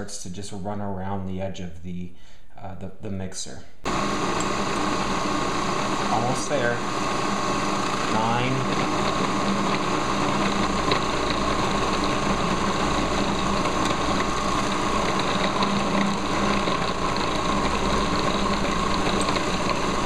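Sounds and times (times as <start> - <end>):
food processor motor running: 3.9 - 20.0.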